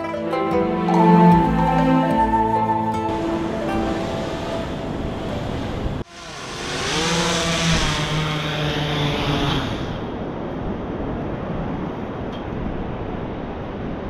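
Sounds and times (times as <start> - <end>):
wind: 0.0 - 14.0
drone motors buzzing: 4.0 - 10.0.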